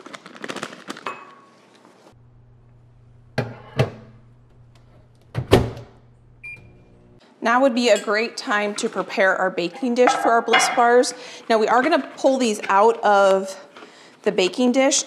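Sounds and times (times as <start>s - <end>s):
low steady hum: 2.2s - 7.2s
microwave door shutting: 3.4s - 4.2s, 5.2s - 6.8s
kitchen clatter: 9.8s - 11.3s.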